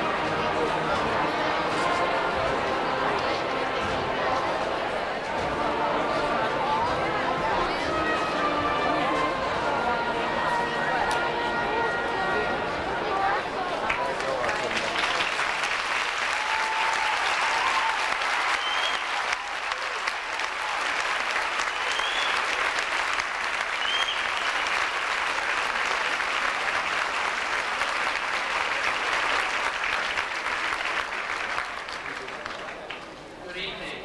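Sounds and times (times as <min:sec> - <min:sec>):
audience applauding: 0:13.8 - 0:33.2.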